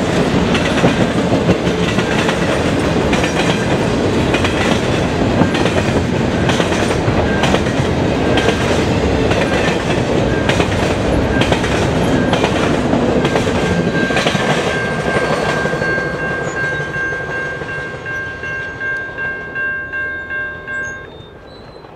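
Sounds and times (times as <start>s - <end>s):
freight train wheels clicking: 0.0s - 21.9s
train rumble: 0.0s - 21.9s
level crossing bell ringing: 13.2s - 21.2s.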